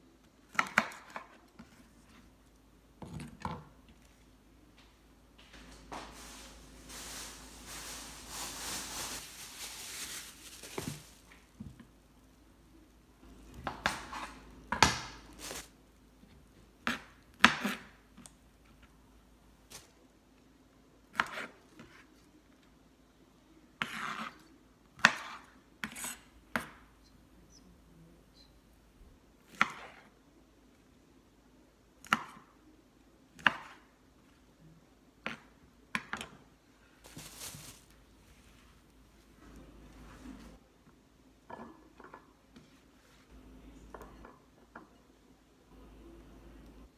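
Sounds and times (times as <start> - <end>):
steady hiss: 5.9 - 11.3.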